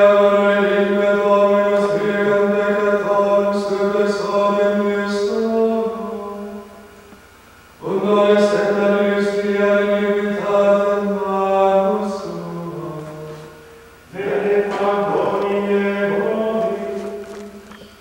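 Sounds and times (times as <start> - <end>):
men chanting in unison: 7.8 - 13.5, 14.1 - 17.3.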